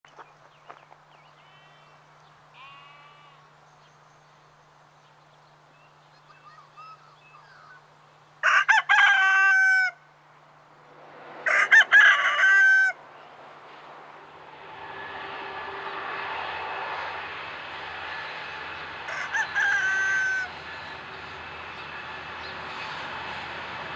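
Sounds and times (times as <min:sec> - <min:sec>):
faint bird calls: 0:05.8 - 0:07.9
rooster crowing: 0:08.4 - 0:10.0, 0:11.4 - 0:13.0, 0:19.0 - 0:20.7
train rumble: 0:10.8 - 0:23.9.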